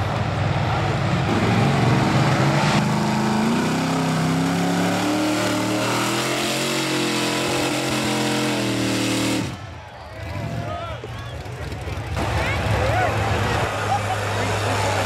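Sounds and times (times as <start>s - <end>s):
van engine at high revs: 1.3s - 9.6s.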